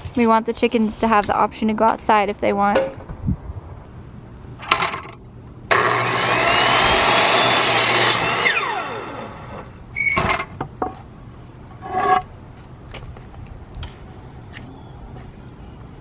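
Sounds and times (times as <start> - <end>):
miter saw cutting wood: 5.7 - 9.8.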